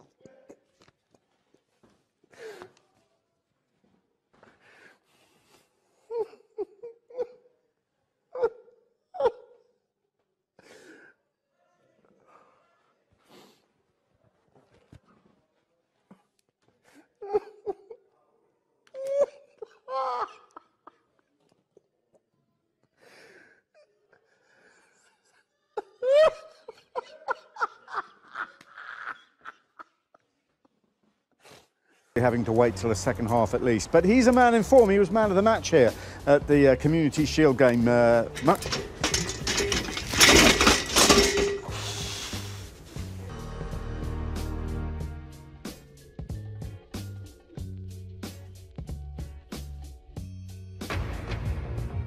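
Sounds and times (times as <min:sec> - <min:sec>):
man laughing: 0:25.9 - 0:30.0
breathy gasps: 0:36.0 - 0:36.2
wheezy breaths: 0:41.6 - 0:42.8.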